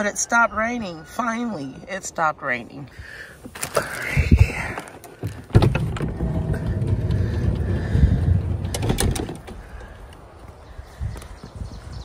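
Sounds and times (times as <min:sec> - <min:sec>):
handling noise rumble: 0:03.7 - 0:10.4
sharp knocks and clicks: 0:08.6 - 0:09.6.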